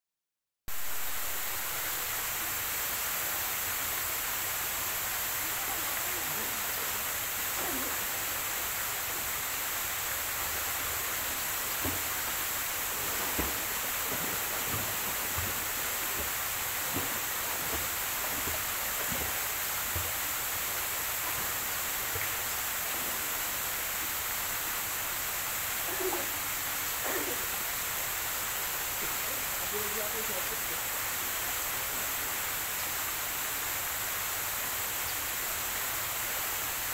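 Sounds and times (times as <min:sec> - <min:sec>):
steady hiss: 0:00.7 - 0:36.9
swimming strokes splashing: 0:10.1 - 0:23.2.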